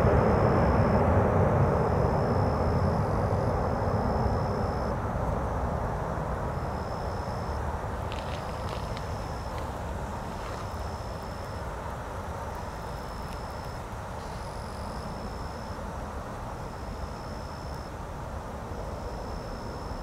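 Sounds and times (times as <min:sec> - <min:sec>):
thin high tone: 0:00.0 - 0:05.6, 0:06.4 - 0:09.7, 0:10.3 - 0:11.7, 0:12.6 - 0:15.9, 0:16.6 - 0:17.9
low outdoor rumble: 0:00.0 - 0:20.0.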